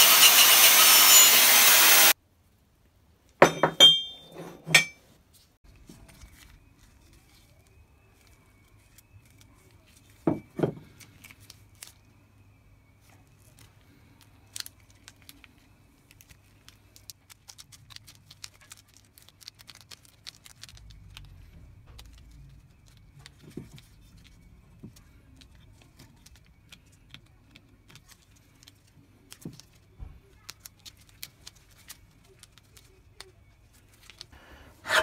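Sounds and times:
gloves crinkling: 0:10.8 - 0:12.1, 0:12.9 - 0:34.4.

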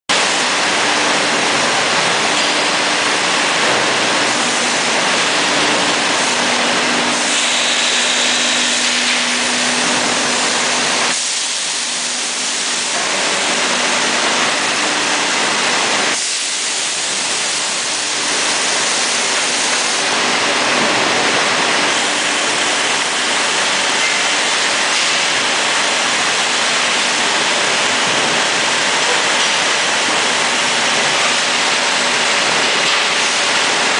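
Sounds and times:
machine line hiss: 0:02.3 - 0:20.2.

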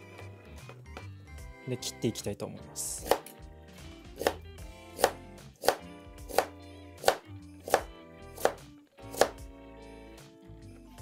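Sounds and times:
soft background music: 0:00.0 - 0:11.0
knife chopping carrot on board: 0:03.0 - 0:03.4, 0:04.2 - 0:09.5.

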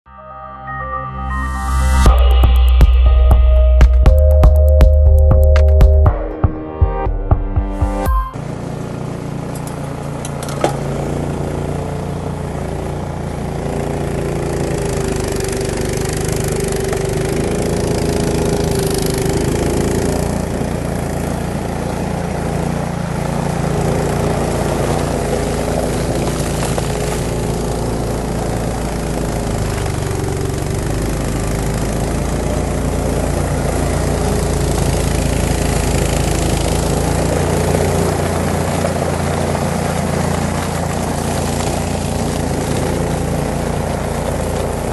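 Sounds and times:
snowblower engine running: 0:08.4 - 0:44.9
augers chewing through slushy snow: 0:13.0 - 0:44.9.

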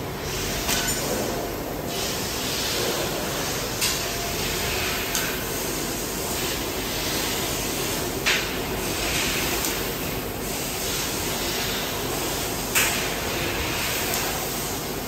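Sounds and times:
machinery and fans humming: 0:00.0 - 0:15.0.

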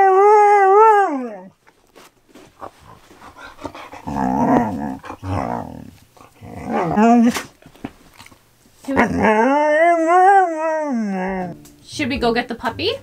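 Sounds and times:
dog growling: 0:02.6 - 0:07.5, 0:08.9 - 0:11.6
dog howling vocal call: 0:06.6 - 0:07.4, 0:09.0 - 0:11.6.

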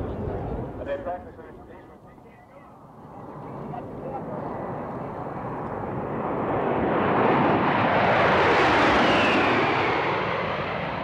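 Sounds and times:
jet engines rushing past: 0:00.0 - 0:11.0
falling jet whine: 0:05.3 - 0:11.0.

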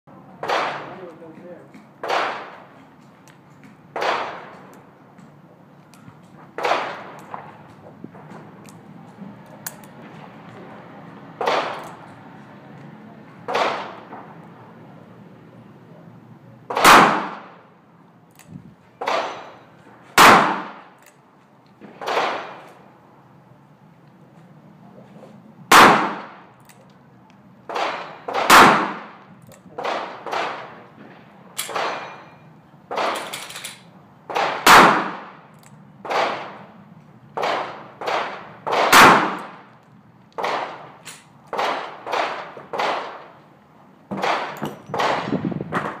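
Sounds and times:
loud revolver shots: 0:00.4 - 0:01.1, 0:02.0 - 0:02.6, 0:03.9 - 0:04.5, 0:06.6 - 0:07.4, 0:11.4 - 0:11.9, 0:16.7 - 0:17.6, 0:19.0 - 0:19.6, 0:20.2 - 0:20.9, 0:21.9 - 0:22.6, 0:25.7 - 0:26.5, 0:27.7 - 0:29.2, 0:29.8 - 0:30.8, 0:34.3 - 0:35.4, 0:36.0 - 0:36.6, 0:37.4 - 0:39.7, 0:40.4 - 0:43.3, 0:44.1 - 0:46.0
fainter gunshots: 0:16.7 - 0:17.6, 0:20.2 - 0:20.8.

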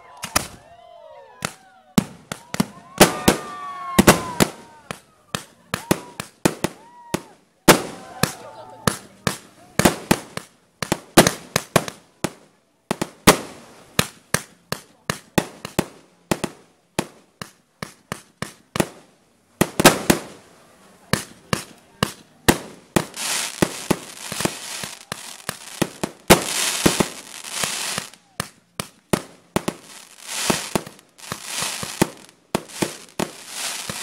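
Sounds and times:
fireworks bursting with sharp bangs: 0:00.1 - 0:00.6, 0:01.4 - 0:34.0
hissing crackle: 0:19.6 - 0:34.0.

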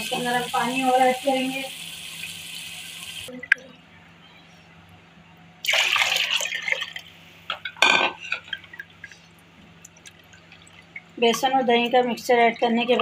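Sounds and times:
water pouring into a pot: 0:05.6 - 0:07.0.

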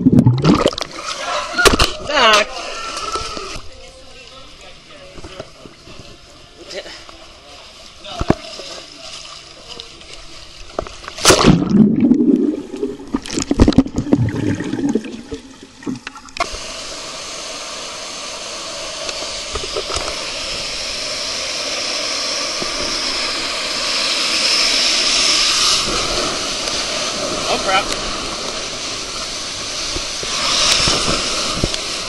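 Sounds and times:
water splashing and sloshing: 0:00.0 - 0:01.2, 0:10.6 - 0:16.6
water rushing down slide: 0:18.6 - 0:32.0.

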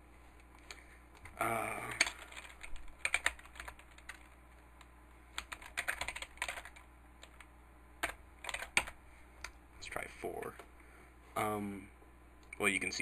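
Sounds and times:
keyboard typing: 0:00.6 - 0:09.6.

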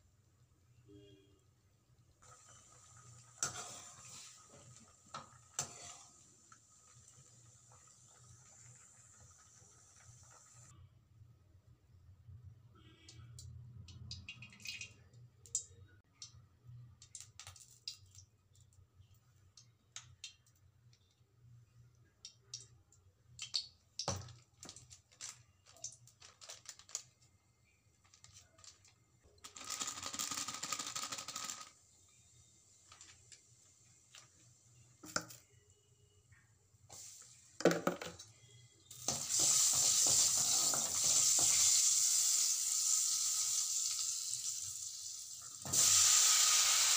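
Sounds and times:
paste sizzling in hot oil: 0:02.2 - 0:10.7, 0:38.9 - 0:46.9.

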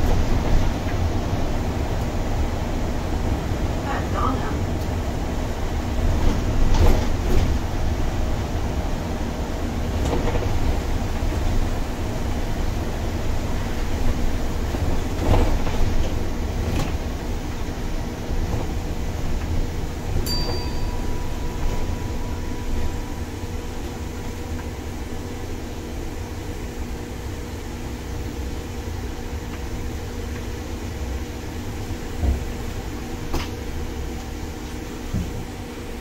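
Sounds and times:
bus engine and road rumble: 0:00.0 - 0:36.0
thin tone: 0:20.2 - 0:24.4.

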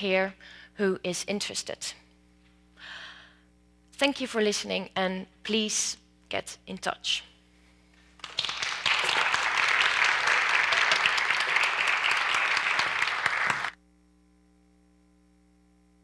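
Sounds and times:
faint electrical hum: 0:00.0 - 0:16.0
audience applauding: 0:08.2 - 0:13.8.

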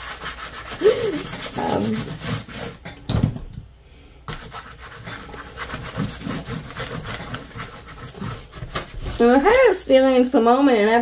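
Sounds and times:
hand rubbing wet paint on paper: 0:00.0 - 0:02.8, 0:04.3 - 0:10.0.

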